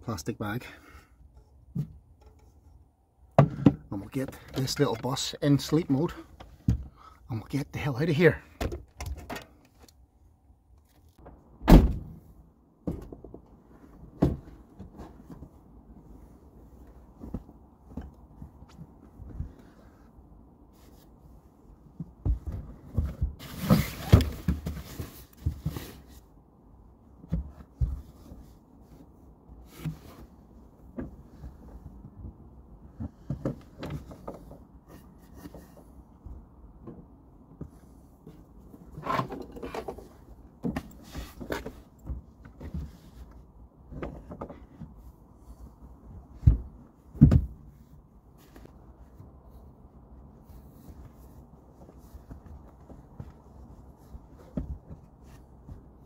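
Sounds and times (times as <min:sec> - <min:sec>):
wooden boards knocking and thumping: 0:03.4 - 0:03.9
cushions rustling: 0:50.3 - 0:56.0.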